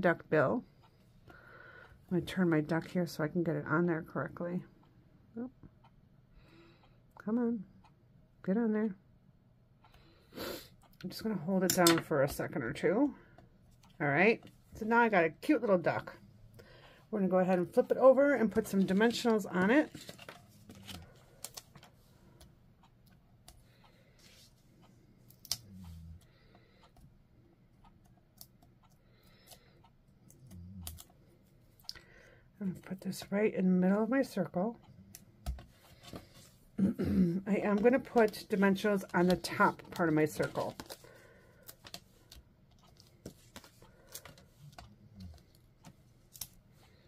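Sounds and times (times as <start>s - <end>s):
paper rustling: 18.6s - 21.8s.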